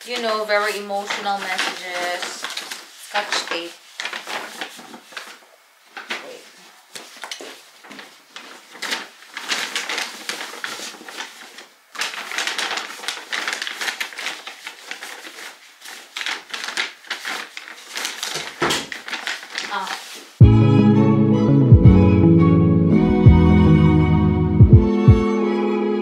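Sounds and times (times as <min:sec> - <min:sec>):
paper bags rustling: 0:00.0 - 0:20.4.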